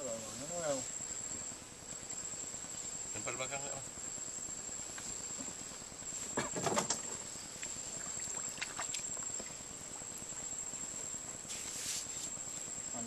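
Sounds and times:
hissing rustle: 0:00.0 - 0:13.0
steady high-pitched hum: 0:00.0 - 0:13.0
knocks and rustles in a boat: 0:06.2 - 0:07.3.

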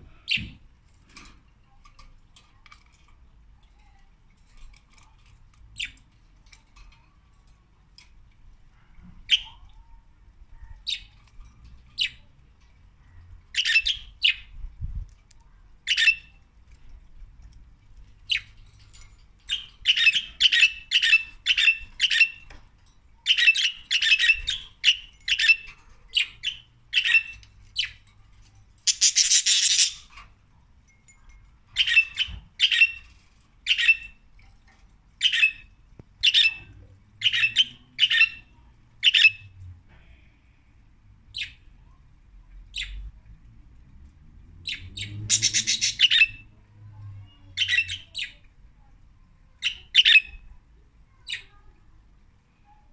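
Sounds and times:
budgerigars chirping: 0:28.9 - 0:30.1, 0:44.7 - 0:46.4.

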